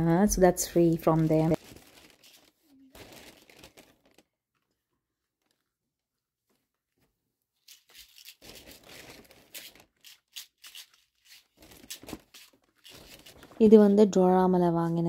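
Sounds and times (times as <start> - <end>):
plastic bag crinkling: 0.8 - 5.7, 7.6 - 14.0.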